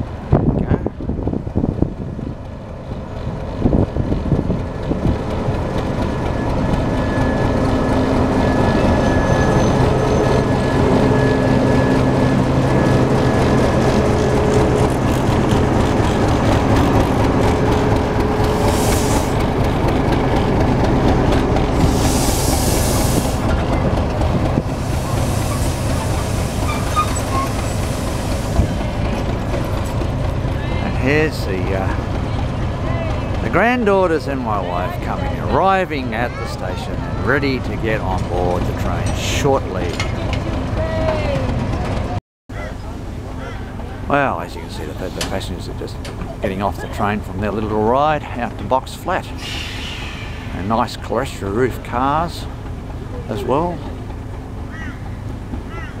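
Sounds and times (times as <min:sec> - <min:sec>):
diesel locomotive engine droning: 0:00.0 - 0:56.0
short loud hisses: 0:49.4 - 0:50.6.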